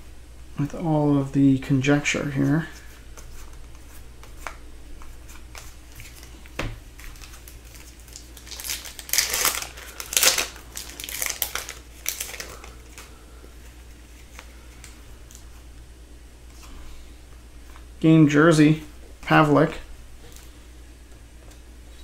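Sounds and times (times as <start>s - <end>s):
foil wrapper crinkling: 3.4s - 15.4s.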